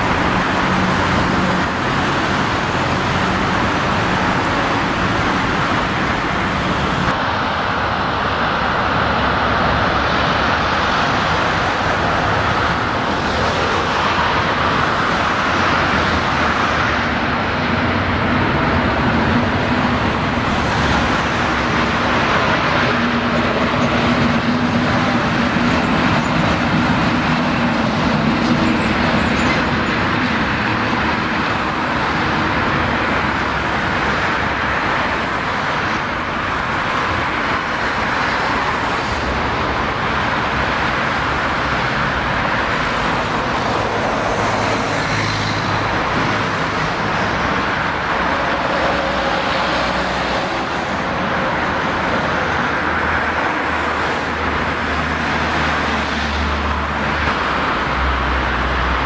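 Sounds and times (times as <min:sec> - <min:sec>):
diesel locomotive engine hum: 0:00.0 - 0:59.0.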